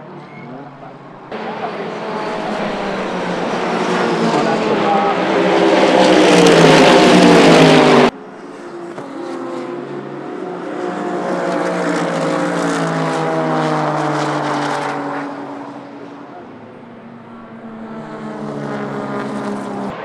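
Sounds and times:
race car engines: 0.0s - 20.0s
race car passing at high revs: 1.2s - 20.0s.

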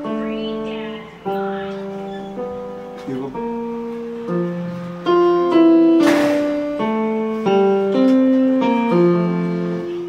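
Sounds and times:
electronic keyboard chords: 0.0s - 10.0s
hissing crash: 6.0s - 6.7s.

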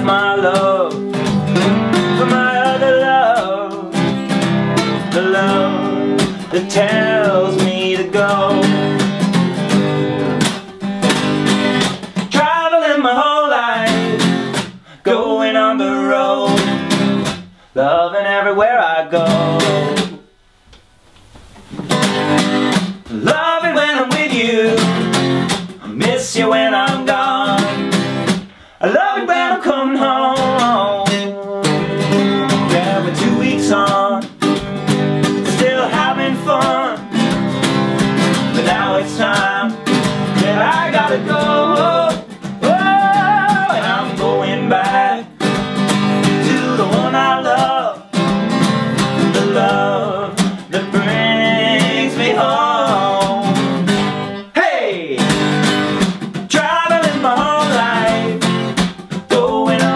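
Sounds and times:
men singing: 0.0s - 9.0s, 12.3s - 17.1s, 17.8s - 20.2s, 23.1s - 25.2s, 25.8s - 28.0s, 28.8s - 34.4s, 35.4s - 37.5s, 38.2s - 45.6s, 46.2s - 48.3s, 49.0s - 53.9s, 54.6s - 55.3s, 56.5s - 59.9s
acoustic guitars strummed: 0.0s - 20.4s, 21.4s - 59.9s.

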